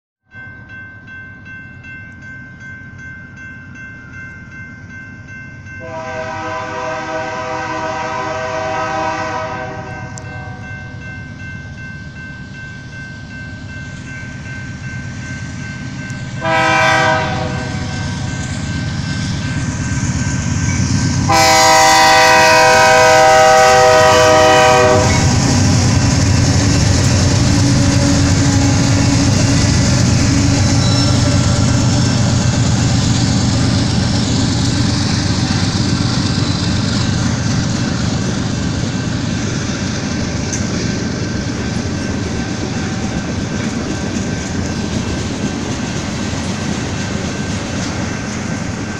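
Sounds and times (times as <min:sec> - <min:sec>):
freight train rumbling on rails: 0:00.4 - 0:48.9
locomotive air horn blasts: 0:05.8 - 0:10.6, 0:16.4 - 0:18.2, 0:21.3 - 0:25.9.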